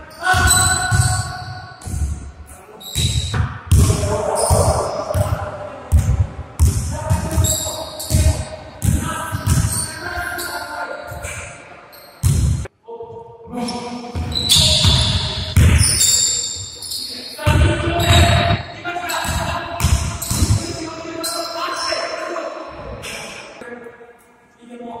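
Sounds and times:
basketball bouncing on gym floor: 0:00.3 - 0:02.3, 0:03.0 - 0:09.9, 0:12.2 - 0:12.7, 0:14.2 - 0:16.1, 0:17.4 - 0:18.6, 0:19.2 - 0:20.8.

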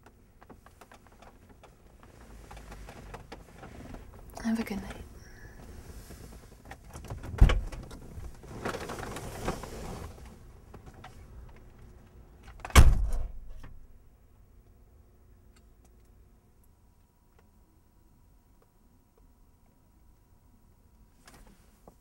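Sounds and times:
rustling: 0:00.3 - 0:11.8
car door slamming: 0:12.6 - 0:13.7.

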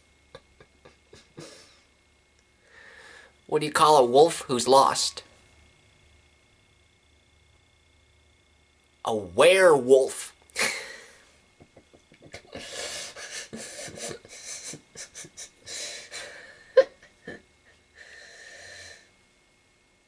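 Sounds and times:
man's stifled breathy laughter: 0:00.4 - 0:01.9, 0:10.6 - 0:11.2, 0:12.2 - 0:17.9.

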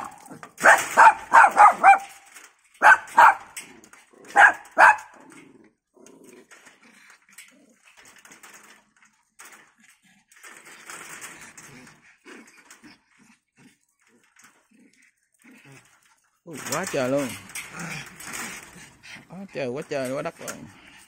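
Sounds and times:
small dogs yapping: 0:00.0 - 0:03.6, 0:04.3 - 0:05.3.

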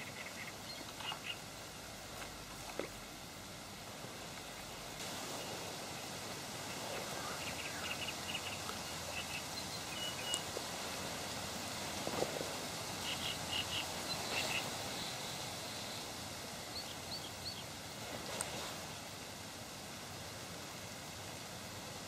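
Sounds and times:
small birds chirping: 0:00.0 - 0:01.6, 0:06.8 - 0:11.2, 0:12.7 - 0:17.8
outdoor background hiss: 0:00.0 - 0:22.0.

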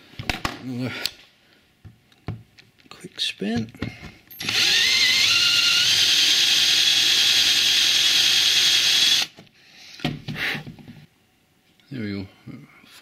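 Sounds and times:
power drill boring into wood: 0:04.4 - 0:09.4.

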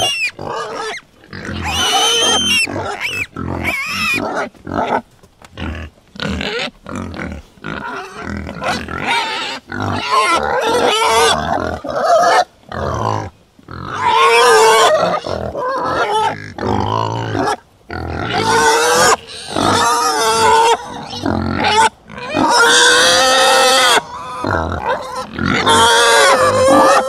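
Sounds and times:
pig grunting and squealing: 0:00.0 - 0:05.0, 0:05.6 - 0:27.0.

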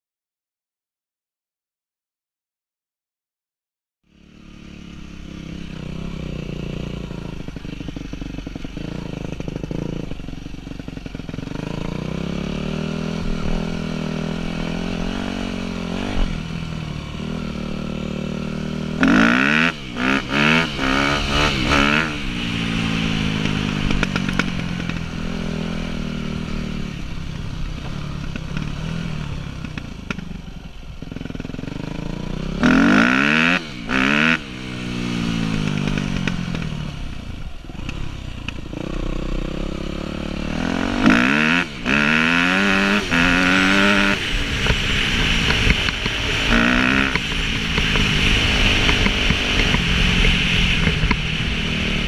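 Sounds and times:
motocross bike engine revving: 0:04.1 - 0:30.3, 0:31.0 - 0:52.0.

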